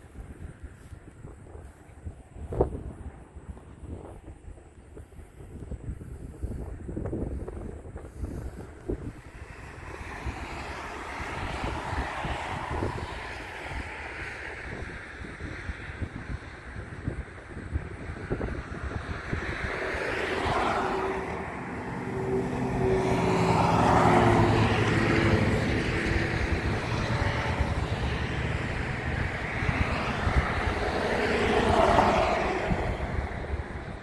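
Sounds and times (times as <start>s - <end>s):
passing vehicle engine: 7.4s - 34.0s.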